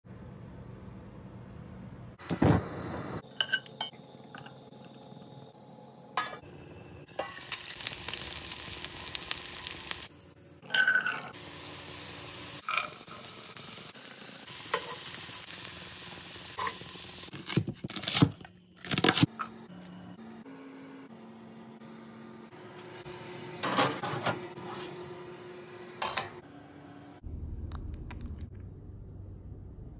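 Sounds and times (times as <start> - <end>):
food sizzling in pan: 7.1 - 17.3.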